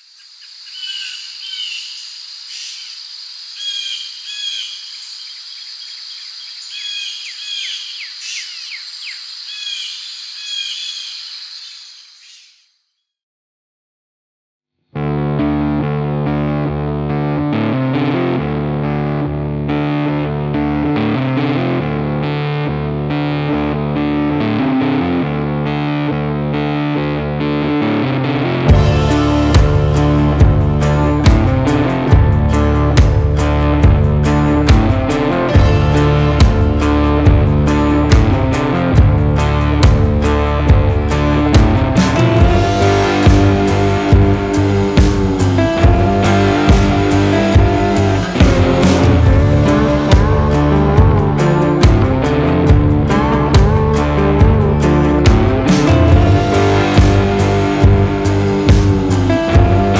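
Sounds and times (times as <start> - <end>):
high-pitched insect drone: 0.0 - 12.3
birds chirping: 0.0 - 12.8
guitar-led instrumental music: 15.0 - 59.9.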